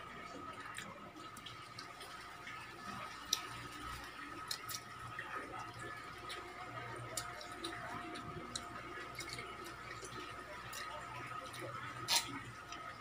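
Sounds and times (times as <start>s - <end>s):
soft chewing: 0.2s - 13.0s.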